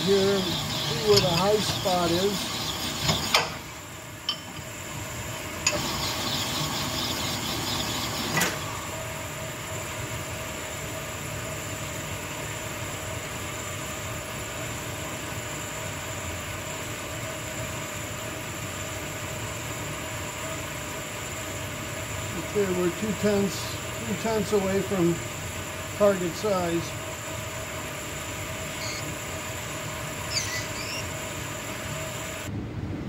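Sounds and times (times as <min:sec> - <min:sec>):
machine motor humming: 0:00.0 - 0:03.9, 0:05.6 - 0:09.1, 0:22.3 - 0:32.5.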